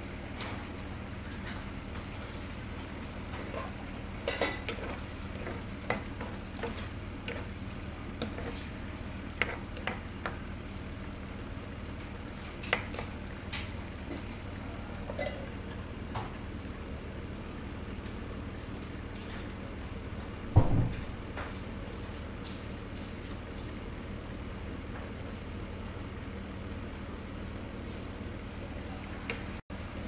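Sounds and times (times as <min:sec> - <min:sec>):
steady low hum: 0:00.0 - 0:30.0
sauce simmering in a pan: 0:00.2 - 0:18.8.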